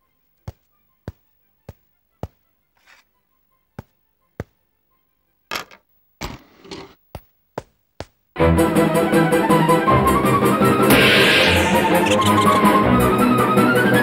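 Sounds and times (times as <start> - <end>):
short noisy swishes: 10.9 - 12.6.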